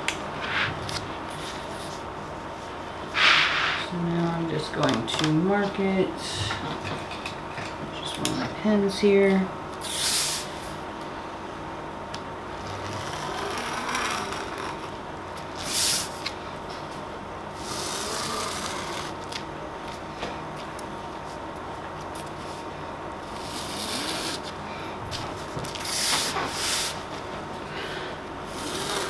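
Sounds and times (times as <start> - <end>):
tool scraping cardboard edge: 23.3 - 24.5, 28.5 - 29.0.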